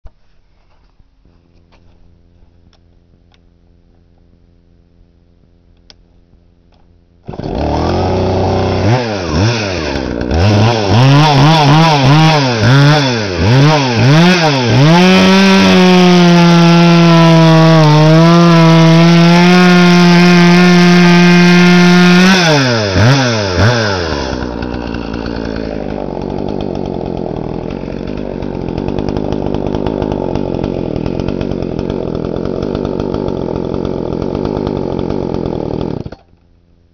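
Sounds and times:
chainsaw revving: 7.2 - 36.3
chainsaw cutting through log: 7.2 - 36.4.

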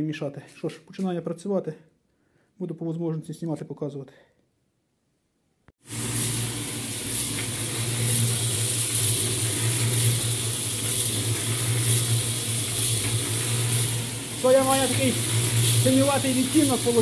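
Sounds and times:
concrete mixer motor hum: 5.8 - 17.0.

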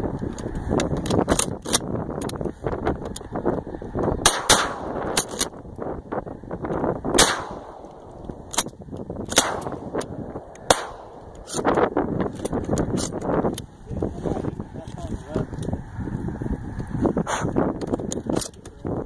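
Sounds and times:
shotgun shots: 4.2 - 5.4, 7.2 - 8.2, 9.3 - 11.7.

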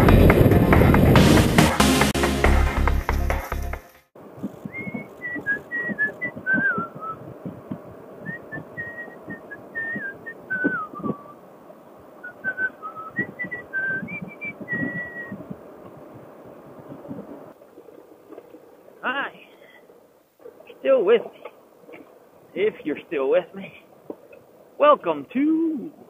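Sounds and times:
wind rumble: 0.0 - 19.1
riding noise: 0.0 - 26.0
person whistling a tune: 4.7 - 7.2, 8.3 - 11.4, 12.3 - 15.4.

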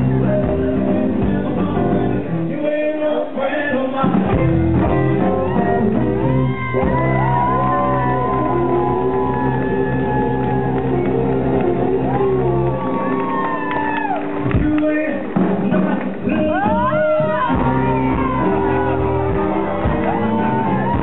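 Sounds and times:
man singing rock and roll: 0.0 - 6.3, 14.5 - 19.1
guitar-led band playing: 0.0 - 21.0.

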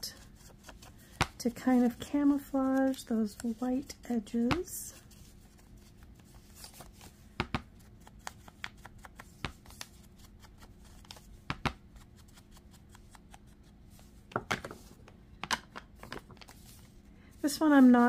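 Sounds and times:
paper handling: 0.2 - 3.9, 5.0 - 7.2, 16.0 - 18.0.

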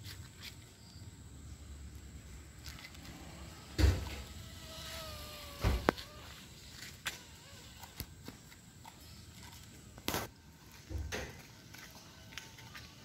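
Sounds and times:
model plane motor whine: 3.2 - 8.1
dull thumps: 5.5 - 6.2.

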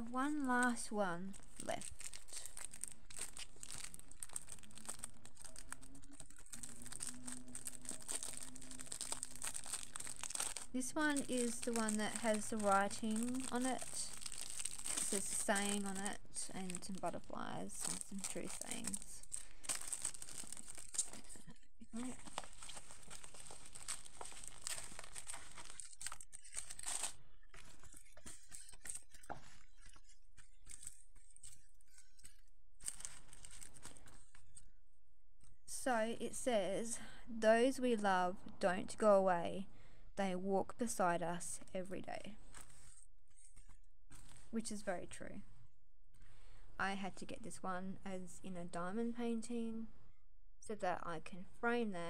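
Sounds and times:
plastic packaging crinkling: 0.4 - 29.9, 30.6 - 34.6.

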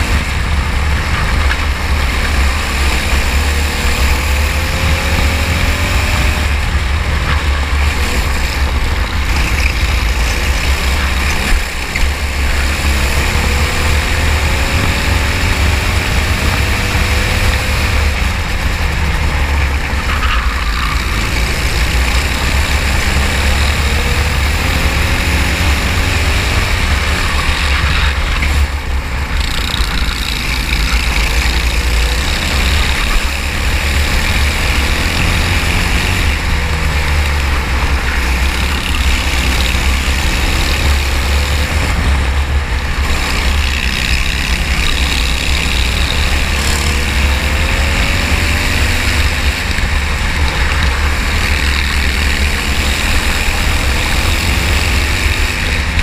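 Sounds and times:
kart engine accelerating: 0.0 - 56.0.

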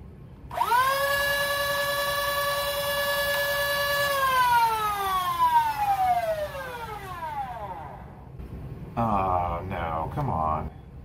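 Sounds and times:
toy blaster flywheel motors whining: 0.5 - 8.1.

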